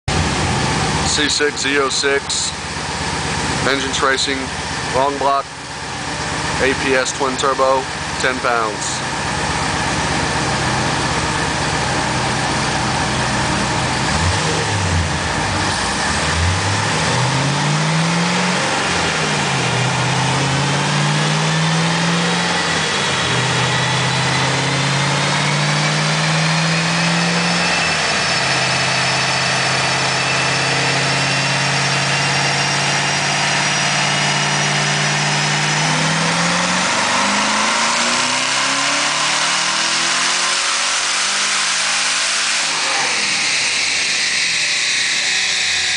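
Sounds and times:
car engine revving on dyno: 0.1s - 45.9s
high turbo whine: 0.1s - 45.9s.

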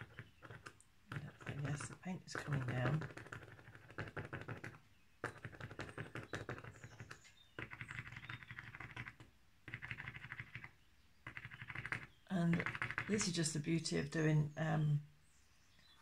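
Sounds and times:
drawing tool scratching paper: 0.0s - 10.7s, 11.3s - 13.4s.

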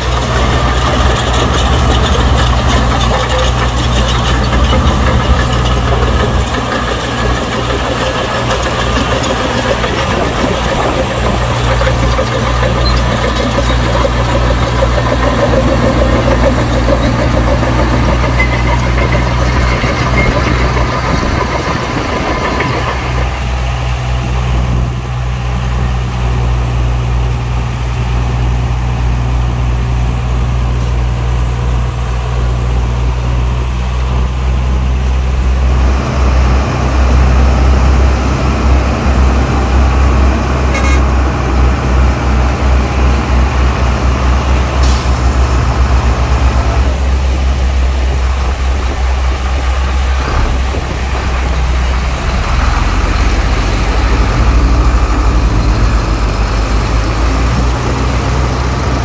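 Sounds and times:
heavy diesel engine droning: 0.0s - 59.0s.

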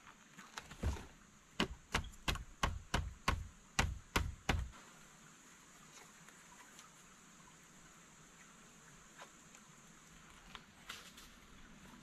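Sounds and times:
sharp wooden knocks: 1.6s - 4.7s.

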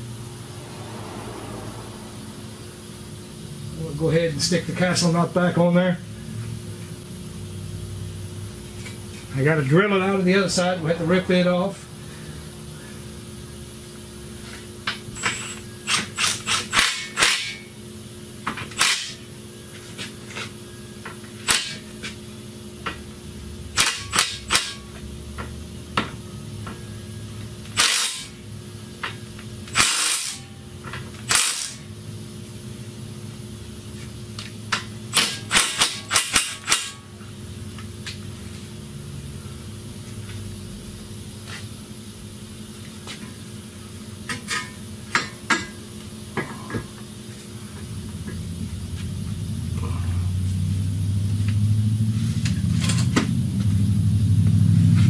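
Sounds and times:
cordless power tool bursts: 15.2s - 17.7s, 18.7s - 19.2s, 21.4s - 21.8s, 27.7s - 28.4s, 29.7s - 30.5s, 31.2s - 31.8s, 35.1s - 37.0s.

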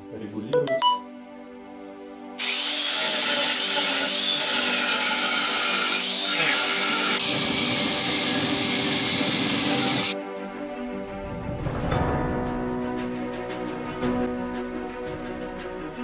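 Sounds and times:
chainsaw attachment cutting wood: 2.4s - 10.2s.

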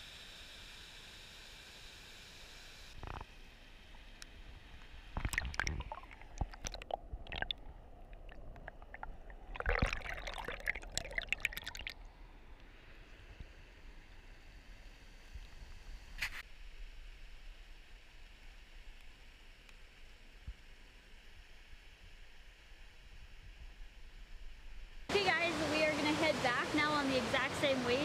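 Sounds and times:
water splashing and bubbling: 5.1s - 12.2s
rushing waterfall: 25.1s - 28.0s.

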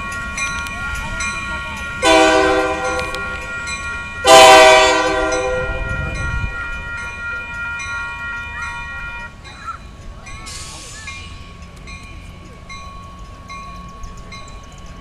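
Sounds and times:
low rumble of passing locomotive: 0.0s - 15.0s
locomotive air horn blasts: 2.0s - 3.5s, 4.2s - 9.3s.

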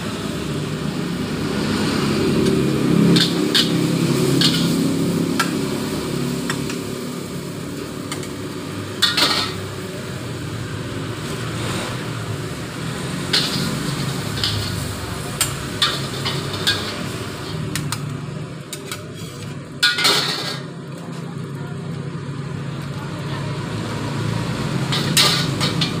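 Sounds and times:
wok burner rumble: 0.0s - 26.0s
metal spatula scraping a wok: 3.0s - 5.2s, 13.0s - 17.8s, 18.8s - 20.8s, 24.8s - 26.0s
spatula and ladle clinking: 3.1s - 5.7s, 8.0s - 9.8s, 13.1s - 18.0s, 24.8s - 26.0s.

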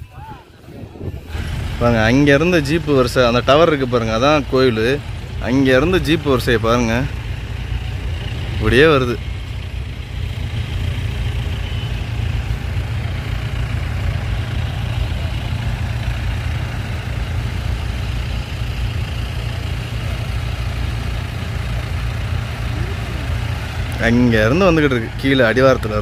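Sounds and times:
wind buffeting microphone: 0.0s - 2.2s.

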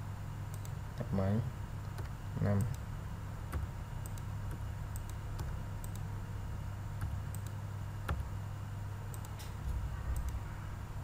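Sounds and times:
steady low hum: 0.0s - 11.0s
keyboard and mouse clicks: 0.5s - 0.8s, 3.5s - 6.1s, 7.0s - 8.3s, 9.1s - 9.6s, 10.2s - 10.4s.

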